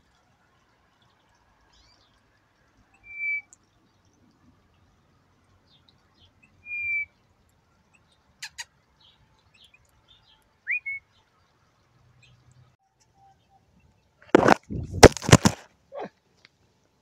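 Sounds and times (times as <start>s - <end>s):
high bird chirps: 8.0s - 11.3s
soft whistled notes: 10.7s - 11.1s.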